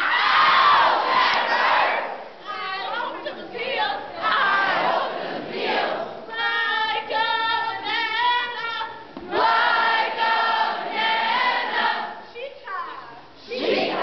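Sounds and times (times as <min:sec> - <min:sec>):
group of voices singing in unison: 0:09.3 - 0:12.2.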